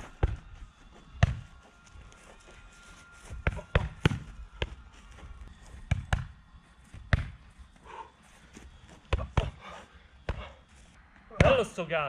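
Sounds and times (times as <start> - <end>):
punches smacking focus mitts: 9.1 - 9.6.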